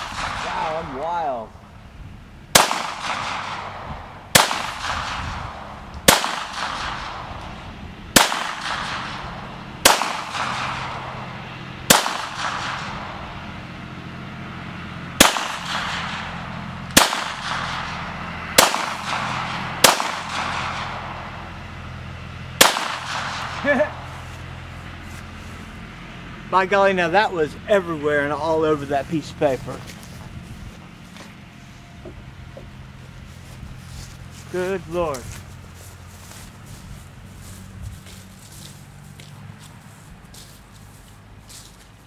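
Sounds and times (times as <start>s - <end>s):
pistol shots echoing: 0.0s - 0.9s, 2.5s - 7.4s, 8.1s - 11.3s, 11.9s - 13.1s, 15.2s - 21.4s, 22.6s - 24.1s.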